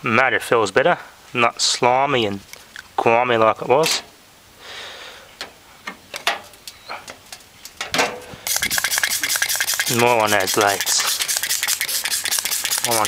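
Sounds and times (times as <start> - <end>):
spray bottle squirts: 8.5 - 13.0
spray hiss: 8.5 - 13.0
spray trigger clicks: 8.5 - 13.0.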